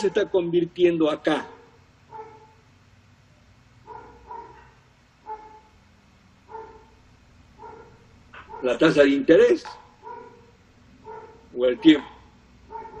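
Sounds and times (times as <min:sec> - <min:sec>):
dog barking faintly: 0:01.3 - 0:02.6, 0:03.8 - 0:05.7, 0:06.5 - 0:07.0, 0:07.6 - 0:13.0.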